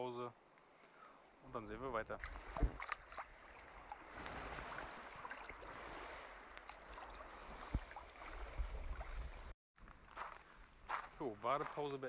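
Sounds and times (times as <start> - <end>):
sea water lapping and splashing: 2.1 - 9.5.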